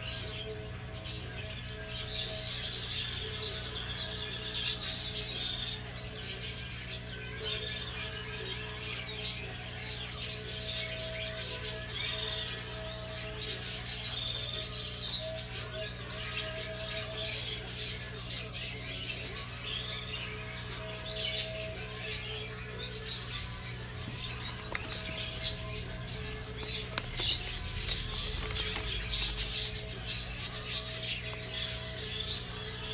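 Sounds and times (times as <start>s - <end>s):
small birds chirping: 0.0s - 32.9s
steady low hum: 0.0s - 32.9s.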